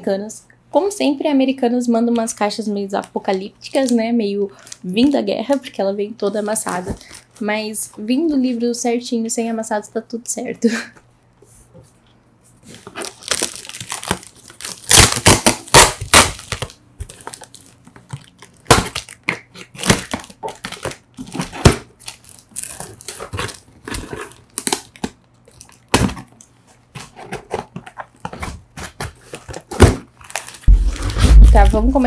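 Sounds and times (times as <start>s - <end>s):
cardboard box crinkling: 12.7s - 26.4s, 27.0s - 32.0s.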